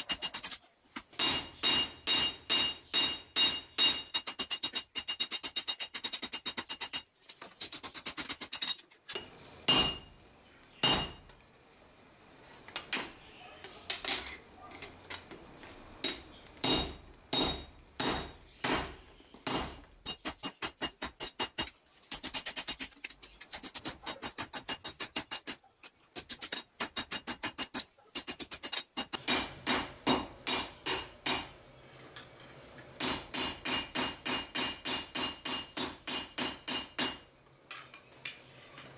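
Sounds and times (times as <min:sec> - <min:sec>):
hammer striking metal on anvil: 0:01.2 - 0:07.0, 0:08.5 - 0:10.1, 0:10.8 - 0:11.3, 0:16.0 - 0:21.8, 0:26.4 - 0:31.6, 0:33.0 - 0:37.3.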